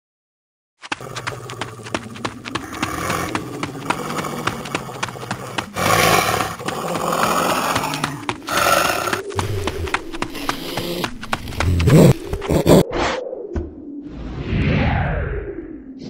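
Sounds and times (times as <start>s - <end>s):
animal growling and roaring: 0.9s - 13.0s.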